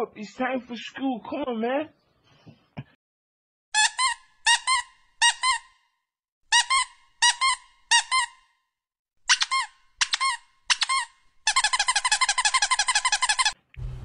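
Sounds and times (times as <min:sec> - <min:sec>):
squeaky toy squeaks: 0:03.8 - 0:05.8, 0:06.5 - 0:08.6, 0:09.3 - 0:13.6.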